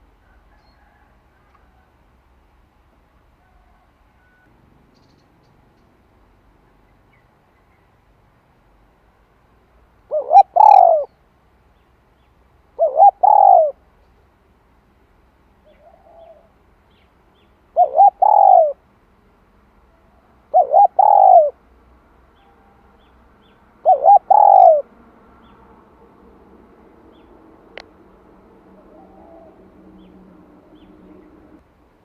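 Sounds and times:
dove cooing: 0:10.1 - 0:11.1, 0:12.8 - 0:13.8, 0:15.6 - 0:16.6, 0:17.7 - 0:18.8, 0:20.0 - 0:21.6, 0:23.8 - 0:25.6, 0:28.4 - 0:31.6.

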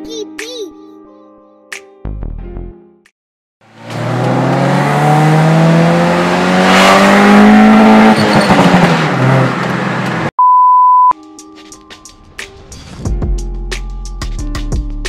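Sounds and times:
car engine accelerating: 0:03.6 - 0:10.3
short high beep: 0:10.4 - 0:11.2.

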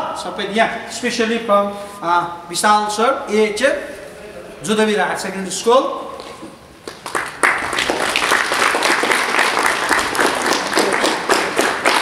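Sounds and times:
group of people applauding: 0:06.8 - 0:12.0.

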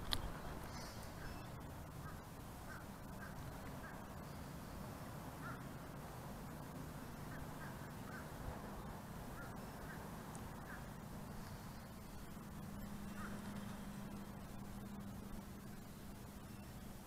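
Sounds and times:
faint bird calls: 0:00.0 - 0:17.0
low background noise: 0:00.0 - 0:17.0.

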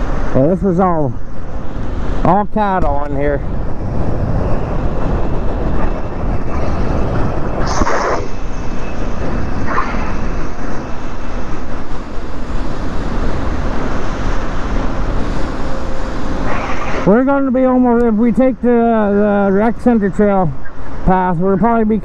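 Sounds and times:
wind rumble on microphone: 0:00.0 - 0:22.0.

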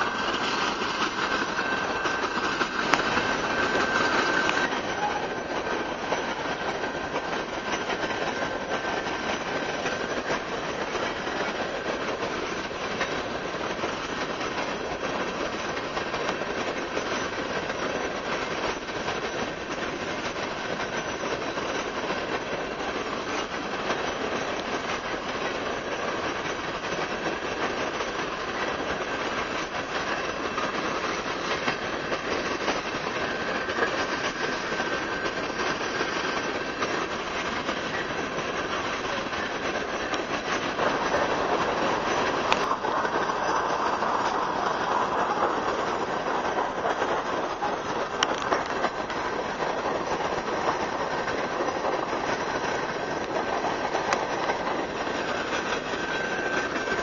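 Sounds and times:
high wheel squeal: 0:00.0 - 0:57.0
train wheels rumbling on rail: 0:00.0 - 0:57.0.

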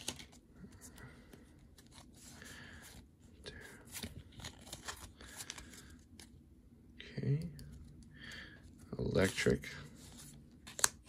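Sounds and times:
cards being shuffled: 0:00.0 - 0:02.4, 0:03.8 - 0:06.3, 0:09.1 - 0:11.0.

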